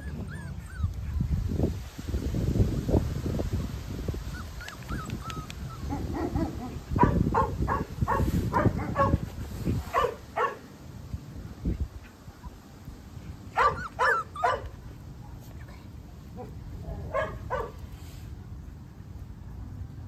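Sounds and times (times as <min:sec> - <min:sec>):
puppies yipping and barking: 0:00.0 - 0:01.5, 0:04.2 - 0:09.3, 0:13.3 - 0:14.9.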